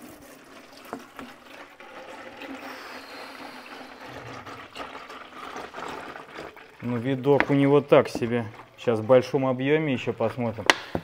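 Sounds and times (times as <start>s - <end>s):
oil pouring into container: 0.0s - 10.4s.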